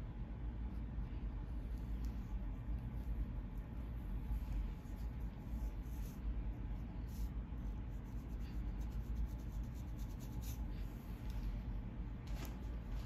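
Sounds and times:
steady low rumble: 0.0s - 13.0s
comb scratching along scalp: 1.8s - 11.3s.

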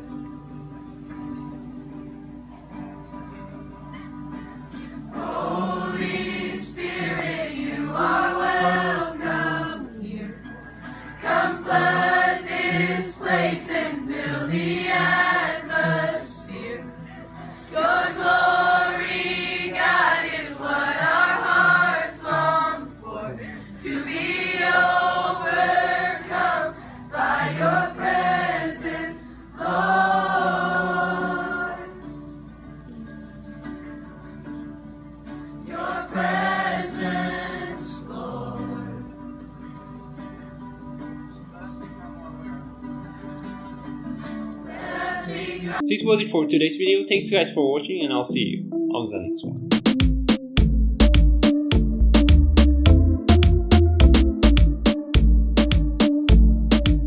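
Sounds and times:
crowd of students singing: 5.1s - 10.4s, 11.2s - 17.0s, 17.7s - 32.1s, 35.6s - 39.2s, 44.6s - 46.0s.

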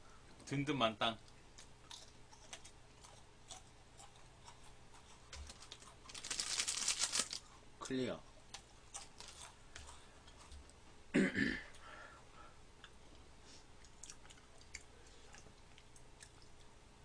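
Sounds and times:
chewing crisp cookie: 1.2s - 7.6s, 8.3s - 10.8s, 12.8s - 16.8s
throaty sound from person: 11.2s - 11.7s.

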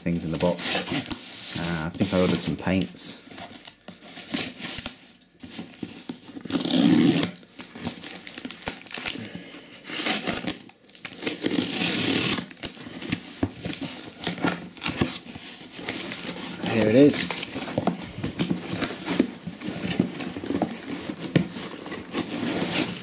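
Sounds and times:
tape crinkling: 0.0s - 23.0s
knife cutting tape and cardboard: 11.2s - 12.5s.

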